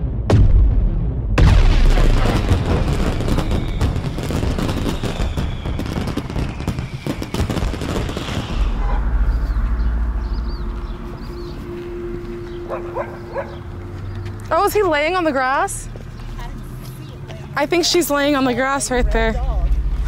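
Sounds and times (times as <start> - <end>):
low rumble: 0.0 - 5.7, 7.6 - 16.8, 18.9 - 20.0
firework boom: 0.0 - 11.2
firework crackling: 1.4 - 9.6.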